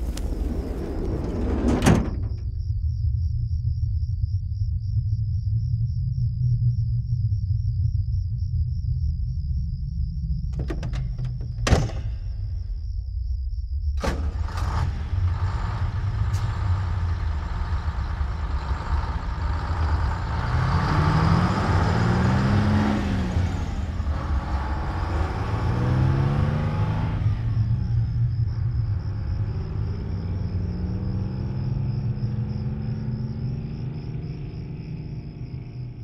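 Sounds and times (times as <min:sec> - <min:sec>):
vehicle engine running: 0:14.1 - 0:36.0.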